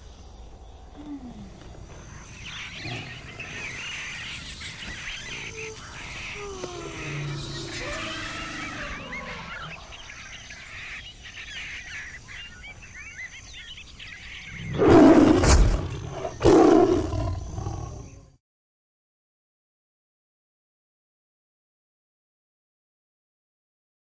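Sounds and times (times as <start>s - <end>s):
birds chirping softly: 0.0s - 18.4s
tiger roaring: 2.6s - 4.0s, 5.2s - 10.0s, 14.6s - 18.2s.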